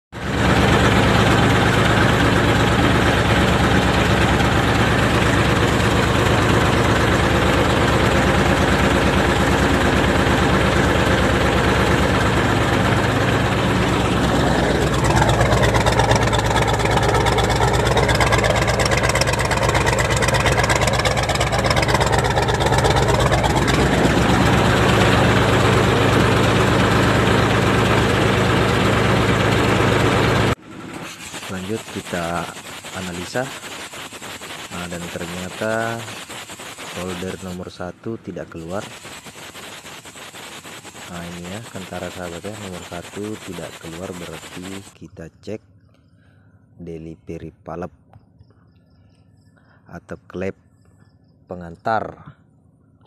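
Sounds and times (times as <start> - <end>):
diesel engine idling: 0.2 - 37.7.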